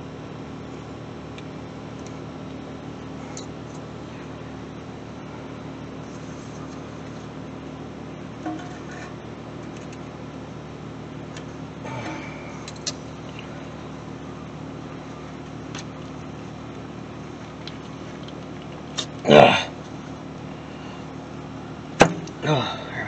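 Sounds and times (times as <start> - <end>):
steady low hum: 0.0 - 23.0
metal scrape: 8.5 - 9.2.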